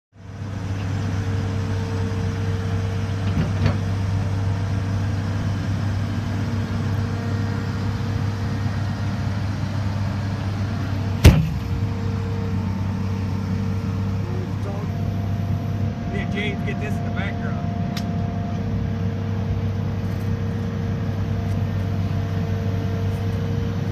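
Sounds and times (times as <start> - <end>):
diesel engine idling: 0.2 - 23.9
sharp knock: 11.2 - 11.7.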